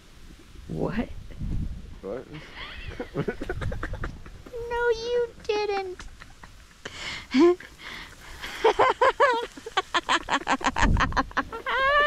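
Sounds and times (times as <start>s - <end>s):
person laughing: 2.4s - 4.6s, 5.8s - 12.0s.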